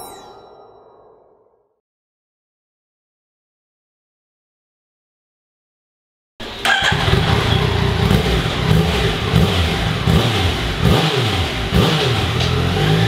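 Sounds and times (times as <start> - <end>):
motorcycle engine revving: 6.4 - 13.0.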